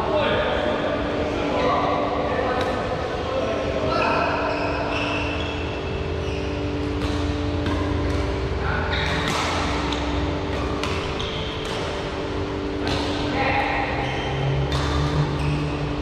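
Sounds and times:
background hum: 0.0s - 16.0s
shoes squeaking on court floor: 3.9s - 16.0s
racket hitting shuttlecock: 6.8s - 13.8s, 14.6s - 15.7s.

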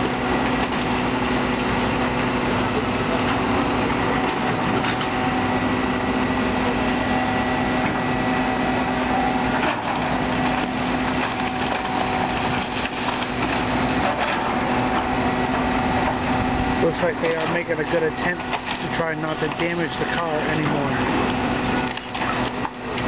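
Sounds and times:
excavator engine running: 0.0s - 23.0s
bucket crunching wood: 9.4s - 16.1s, 16.8s - 23.0s
wood cracking: 9.6s - 14.6s, 18.2s - 23.0s.

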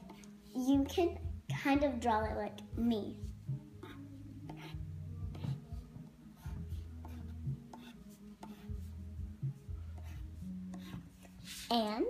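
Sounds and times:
pencil scratching on paper: 0.0s - 1.2s, 3.2s - 9.0s, 9.6s - 11.8s.

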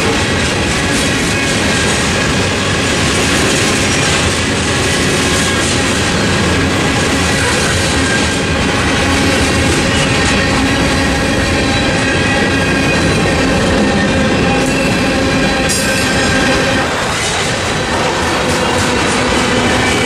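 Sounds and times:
train wheels rumbling on rail: 0.0s - 20.0s
high-pitched wheel squeal: 7.3s - 17.4s.

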